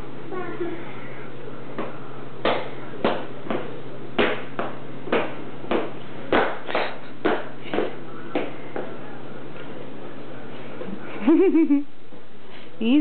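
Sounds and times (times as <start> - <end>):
shoes clomping on tile floor: 1.8 - 9.0.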